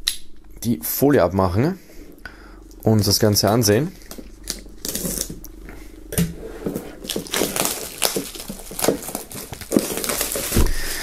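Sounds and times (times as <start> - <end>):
plastic film crinkling: 6.7 - 11.0.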